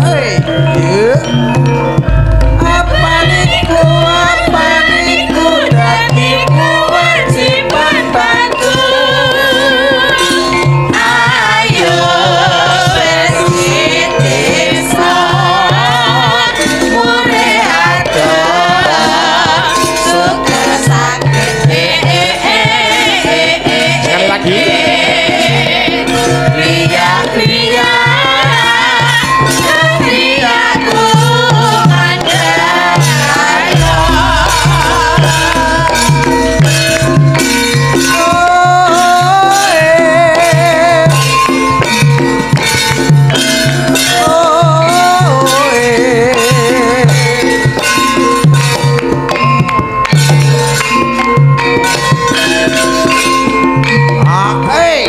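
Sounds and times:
gamelan accompaniment: 0.0 - 55.0
drum strokes: 1.6 - 8.9, 29.7 - 44.1
women singing together: 2.3 - 41.1.

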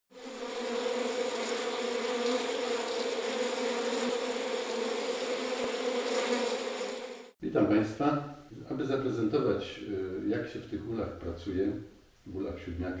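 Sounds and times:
honeybees buzzing: 0.1 - 7.4.

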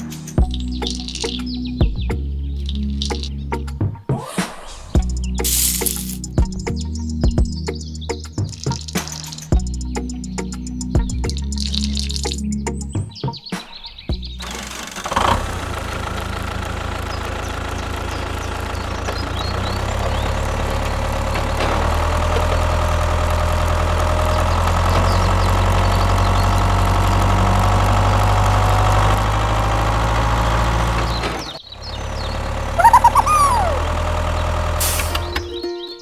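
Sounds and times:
short high chirps: 5.4 - 6.3, 32.8 - 33.9
tractor diesel engine rumbling: 14.2 - 35.6.

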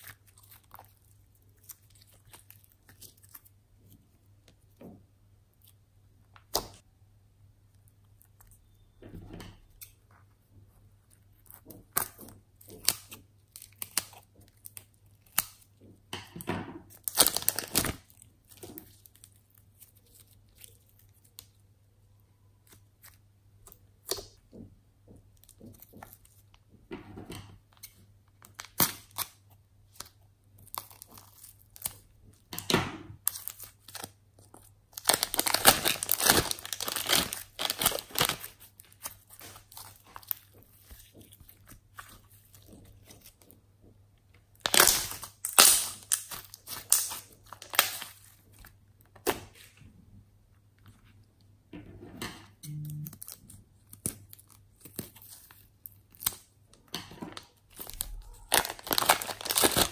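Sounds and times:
slime crackling and popping: 11.0 - 15.9, 16.9 - 21.6, 28.4 - 43.5, 44.5 - 49.5, 52.9 - 56.5, 57.4 - 59.9.

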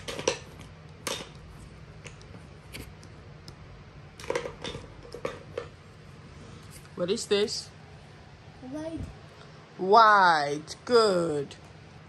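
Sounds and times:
small objects clicking and tapping: 0.0 - 3.6, 4.2 - 5.8
faint steady hum: 0.0 - 12.0.

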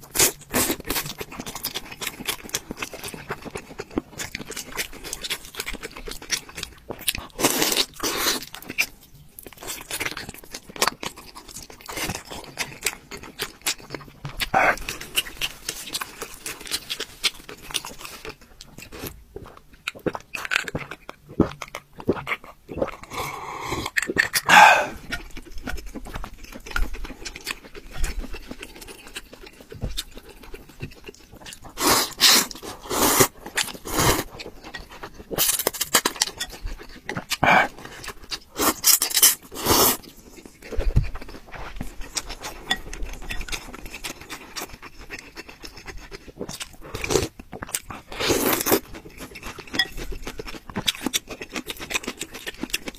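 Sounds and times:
wet chewing: 0.0 - 52.9
slurping noodles: 23.0 - 25.2, 31.7 - 34.4, 37.4 - 40.0.

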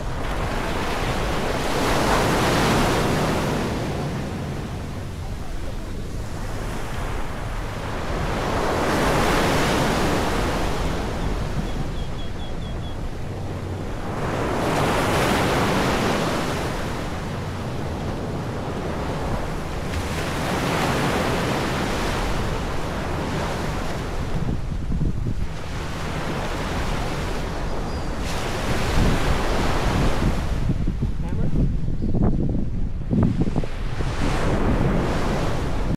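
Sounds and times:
sea waves washing onto beach: 0.0 - 12.0, 13.1 - 31.5
wind rumbling on microphone: 0.0 - 35.9.

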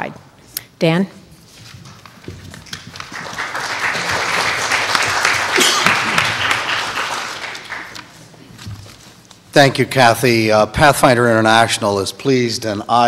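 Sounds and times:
audience applauding: 2.6 - 8.3.

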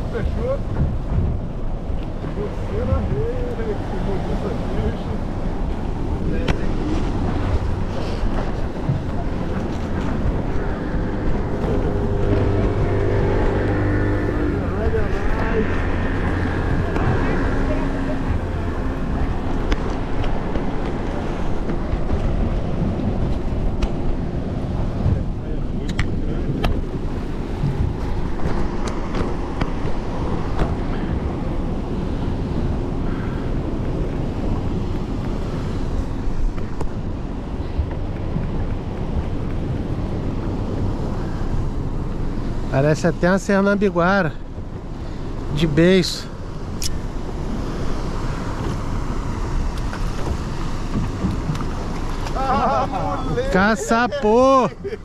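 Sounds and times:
wind across microphone: 0.0 - 42.7
boat motor running: 0.0 - 55.0.

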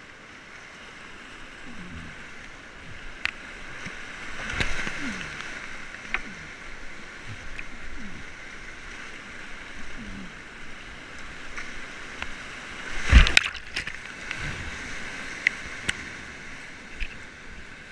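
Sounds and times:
paddle splashes and knocks: 13.0 - 14.5
heavy thump and splash: 13.0 - 14.7.

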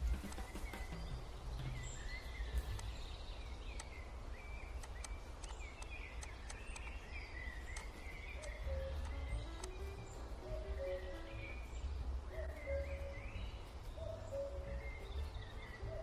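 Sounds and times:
steady low rumble: 0.0 - 16.0
short bird-like chirps: 1.7 - 16.0
sharp clicks: 3.6 - 4.1, 4.7 - 7.1, 7.7 - 10.0.

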